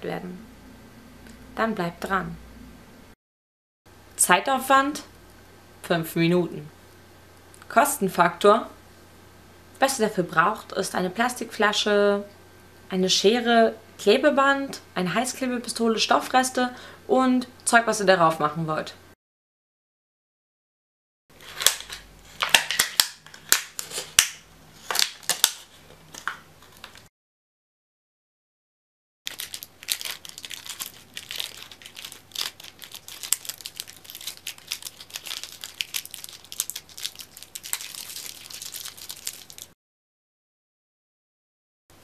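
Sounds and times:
packing tape pulled off roll: 21.4s - 27.1s, 29.3s - 39.8s
plastic bottle crackling and snapping: 21.5s - 27.1s, 29.3s - 39.7s.

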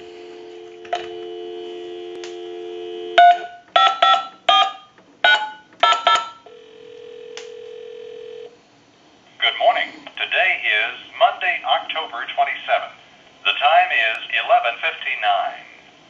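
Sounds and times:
dial tone hum: 0.0s - 4.4s, 5.8s - 8.6s
ringback tone: 0.0s - 8.5s
touch-tone beeps: 3.2s - 6.4s.

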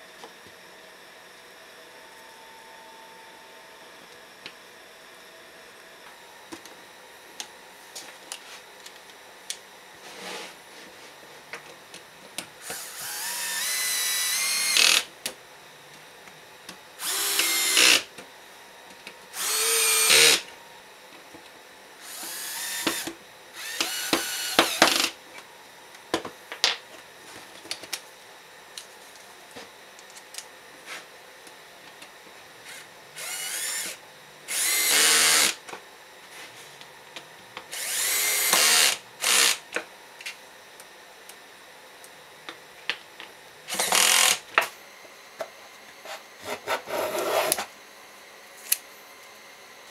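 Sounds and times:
cordless drill driving screws: 12.7s - 15.1s, 17.0s - 18.1s, 19.4s - 20.4s, 22.0s - 25.2s, 32.7s - 35.6s, 37.7s - 39.6s, 43.7s - 44.4s.

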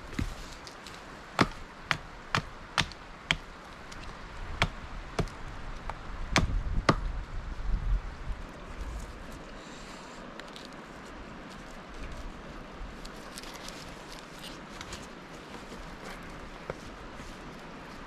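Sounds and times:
axe chopping wood: 1.4s - 3.5s, 4.6s - 7.1s.

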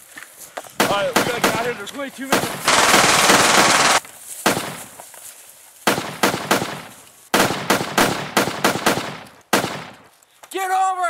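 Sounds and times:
gunshots with echo: 2.6s - 4.6s.

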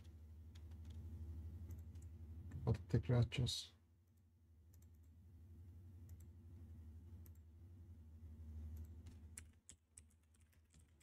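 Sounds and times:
keyboard and mouse clicks: 0.0s - 1.0s, 1.6s - 2.7s, 4.1s - 5.2s, 8.7s - 11.0s
low steady hum: 0.0s - 11.0s.

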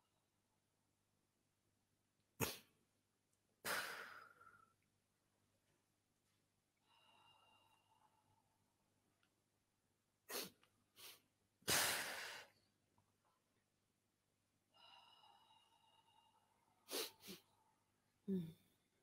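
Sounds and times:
person breathing sharply: 10.3s - 12.6s.

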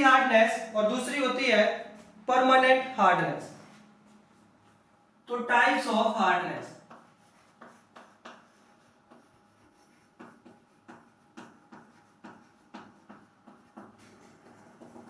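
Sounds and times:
chalk writing on a chalkboard: 6.7s - 15.0s.

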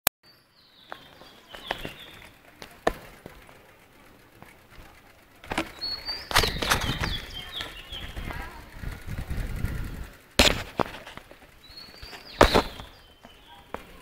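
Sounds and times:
faint high chirps: 11.6s - 14.0s.

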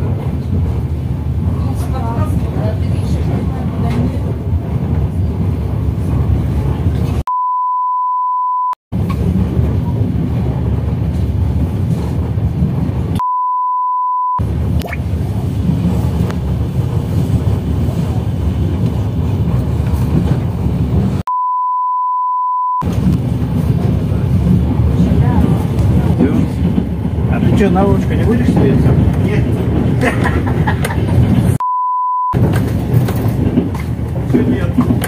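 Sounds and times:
train carriage low rumble: 0.0s - 7.3s, 8.9s - 13.5s, 14.4s - 21.3s, 22.8s - 31.6s, 32.4s - 35.0s
bleep tones: 7.3s - 8.8s, 13.2s - 14.4s, 21.3s - 22.8s, 31.6s - 32.4s.

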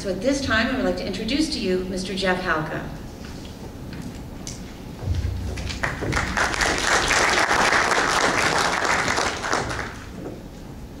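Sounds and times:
audience applauding: 5.6s - 10.1s.

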